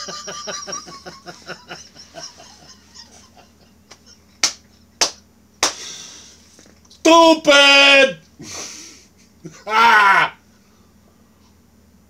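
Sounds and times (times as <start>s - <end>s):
man laughing: 0.0s - 4.4s, 8.4s - 10.4s.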